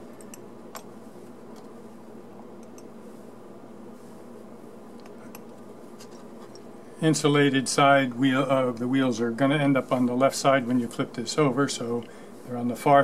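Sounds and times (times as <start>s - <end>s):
low room hum: 0.0s - 13.0s
light clicks of small parts: 2.6s - 2.9s.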